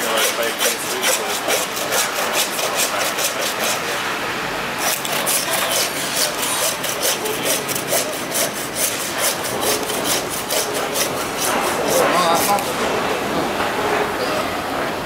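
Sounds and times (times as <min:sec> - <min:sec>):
hand saw cutting through bone: 0:00.0 - 0:04.0, 0:04.8 - 0:12.7.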